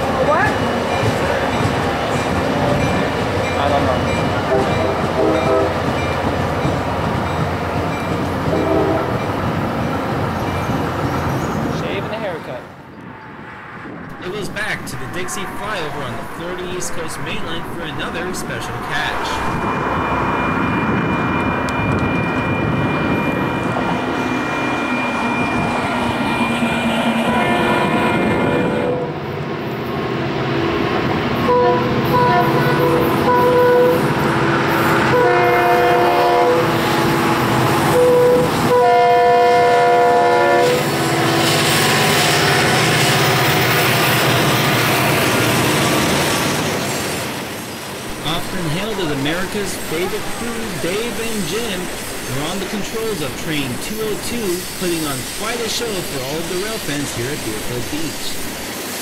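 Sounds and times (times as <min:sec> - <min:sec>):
train rumbling on track: 0:00.0 - 0:59.0
locomotive horn: 0:04.5 - 0:05.8, 0:08.5 - 0:09.2, 0:14.1 - 0:19.6, 0:31.4 - 0:41.7.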